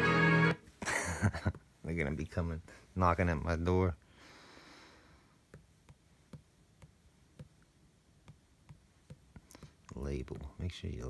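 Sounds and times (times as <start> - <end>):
fingertip taps on touchscreen: 5.5 - 9.7.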